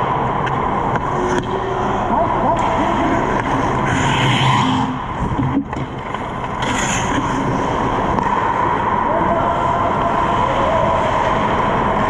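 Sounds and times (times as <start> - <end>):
steady hum: 0.0 - 12.0
skate blades scraping ice: 6.5 - 7.7.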